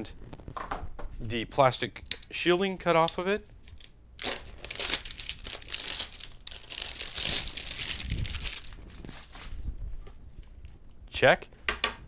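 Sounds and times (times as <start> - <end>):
plastic wrapping crinkling: 2.8 - 9.7.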